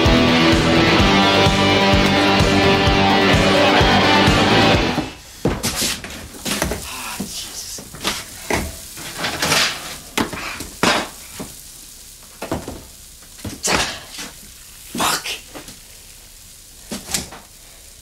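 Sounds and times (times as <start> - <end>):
pots dishes and cutlery clattering: 8.0 - 11.2.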